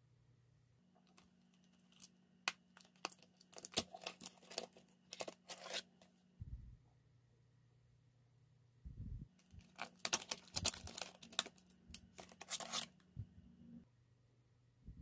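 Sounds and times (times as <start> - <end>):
cardboard packaging crinkling: 1.0 - 6.1, 9.4 - 13.0.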